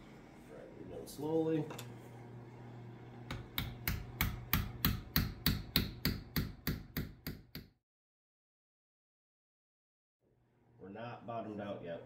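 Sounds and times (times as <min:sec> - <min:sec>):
hammer tapping wooden wedge: 0:03.3 - 0:07.7.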